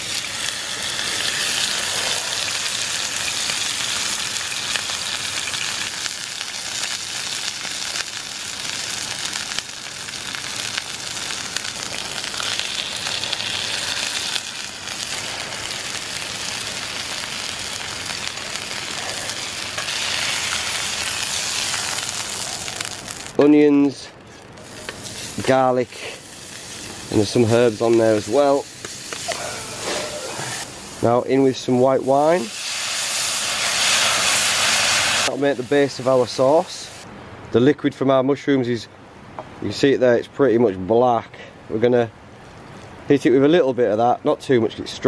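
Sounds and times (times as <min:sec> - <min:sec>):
steaks sizzling in a skillet: 0:00.0 - 0:23.4, 0:24.6 - 0:37.0.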